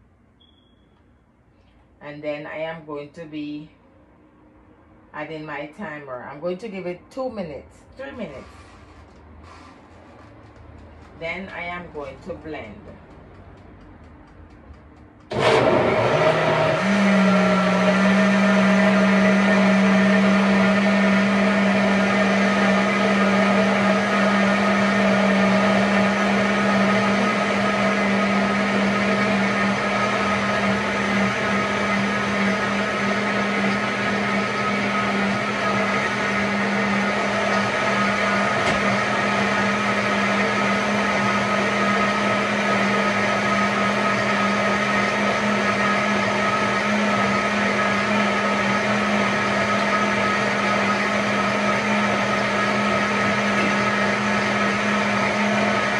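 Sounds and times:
blender motor hum: 15.2 - 55.9.

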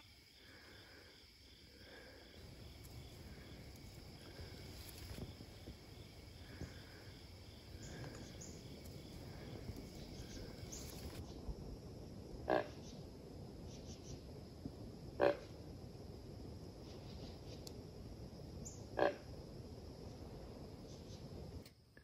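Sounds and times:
insects buzzing: 0.0 - 21.6
pulsing insect chirp: 0.0 - 21.6
low rumble: 0.5 - 16.8.

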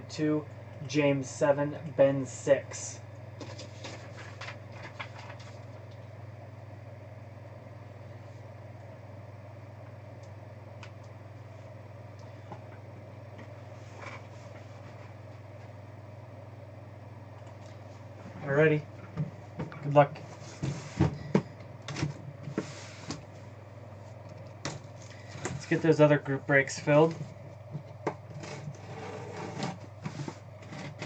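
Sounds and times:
low room tone hum: 0.0 - 31.0.

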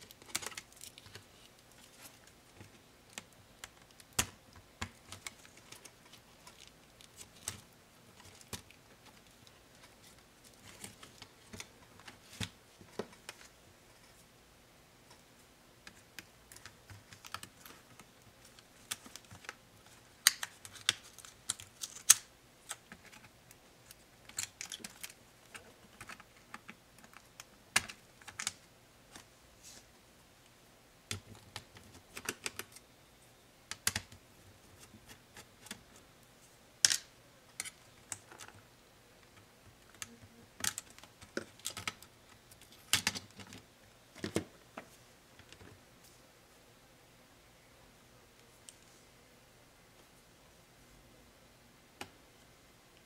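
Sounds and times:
plastic and metal parts clicking: 0.0 - 1.3, 23.9 - 28.6, 39.2 - 43.6.

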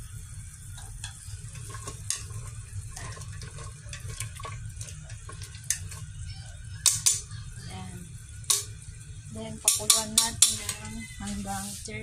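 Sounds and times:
soup boiling and bubbling: 0.0 - 12.0
steady low hum: 0.0 - 12.0
chopsticks knocking against pot: 9.6 - 10.8.

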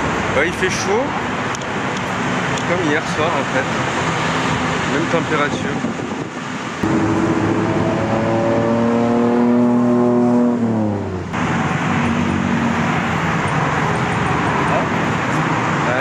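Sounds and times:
steady traffic noise: 0.0 - 16.0
vehicle engine passing by: 6.8 - 16.0.

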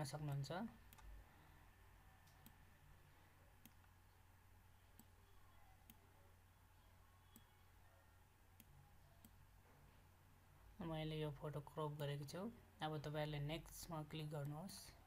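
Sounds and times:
low room hum: 0.0 - 15.0
computer mouse clicks: 0.3 - 1.2, 2.2 - 2.6, 3.6 - 4.0, 4.9 - 6.0, 7.2 - 7.6.

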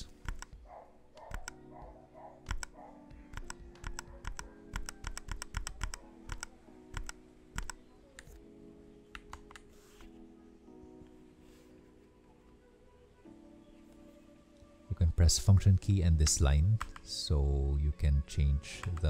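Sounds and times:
keyboard keystrokes clicking: 0.2 - 0.6, 1.2 - 1.6, 2.4 - 8.4, 9.1 - 9.7, 16.2 - 17.1, 18.8 - 19.0.

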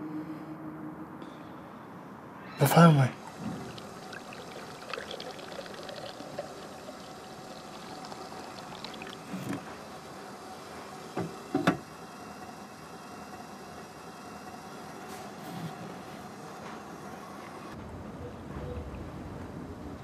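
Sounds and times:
tea pouring into glass cup: 3.2 - 9.7.

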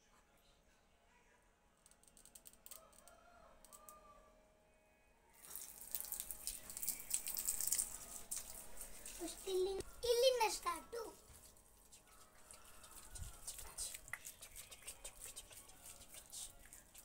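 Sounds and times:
water gushing from a hose: 5.4 - 10.5.

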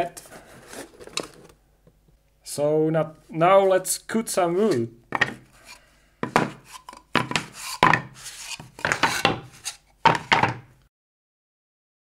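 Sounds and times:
wooden boards knocking and scraping: 5.1 - 5.5, 6.2 - 10.7
paper rustling: 6.4 - 10.3.

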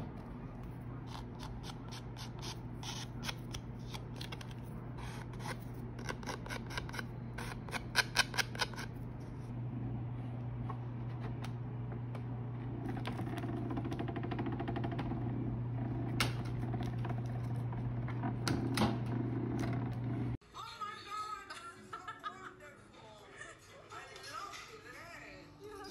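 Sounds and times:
machine humming: 8.6 - 20.4.

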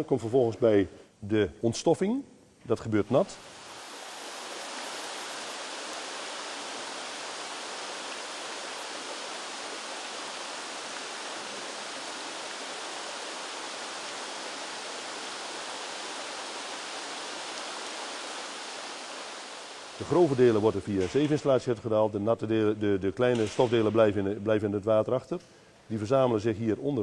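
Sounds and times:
water spray hissing: 3.3 - 20.4.

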